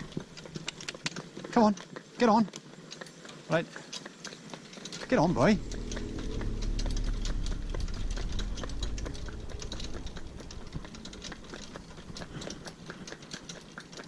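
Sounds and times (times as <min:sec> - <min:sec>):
hooves clip-clopping on tarmac: 0:00.0 - 0:14.0
cart rattling: 0:04.0 - 0:14.0
low rumble: 0:05.0 - 0:13.1.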